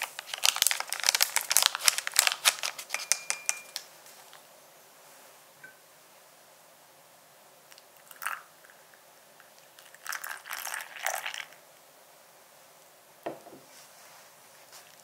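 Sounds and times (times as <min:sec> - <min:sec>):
water trickling into bowl: 0:08.0 - 0:08.8, 0:09.8 - 0:11.6
soft knock: 0:13.3 - 0:13.7.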